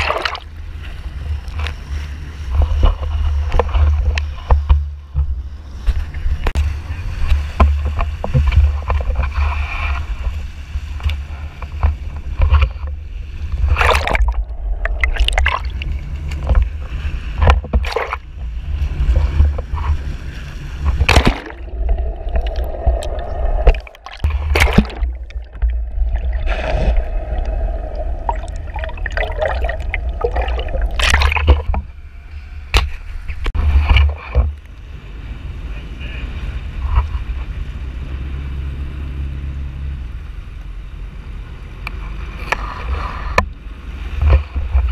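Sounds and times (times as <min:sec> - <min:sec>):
wake sloshing and splashing: 0:00.0 - 0:04.8, 0:06.0 - 0:32.0
boat engine low rumble: 0:00.0 - 0:44.9
sudden loud splashes: 0:21.0 - 0:31.8.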